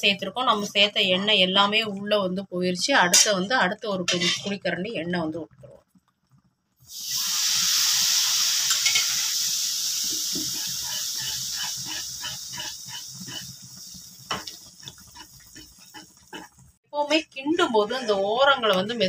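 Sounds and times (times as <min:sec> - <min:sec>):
hot oil sizzling in batter: 0:03.0 - 0:19.0
wooden spatula stirring batter: 0:14.4 - 0:17.2.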